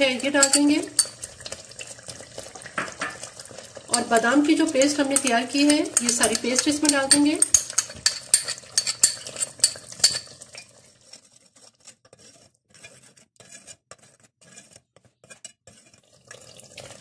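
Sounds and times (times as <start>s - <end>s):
ladle scraping paste: 0.2s - 17.0s
ladle clinking against bowl: 3.9s - 10.7s.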